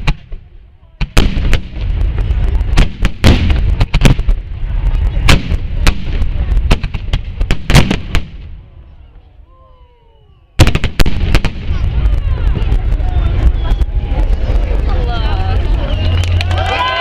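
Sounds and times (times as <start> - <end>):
firework bangs: 0.0 - 8.8, 10.6 - 17.0
low rumble: 1.6 - 7.5, 11.1 - 17.0.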